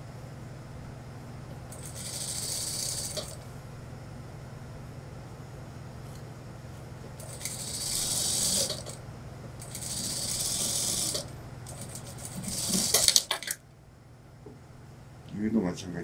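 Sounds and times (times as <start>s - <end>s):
sewing machine stitching: 1.8s - 3.4s, 7.2s - 8.9s, 9.6s - 13.6s
sewing machine stopping clicks: 7.2s - 8.9s, 9.6s - 13.6s.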